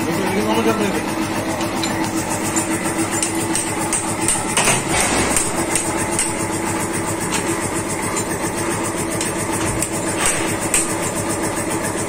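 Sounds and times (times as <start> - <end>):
motor idling drone: 0.0 - 12.0
metal parts clicking: 1.6 - 6.4.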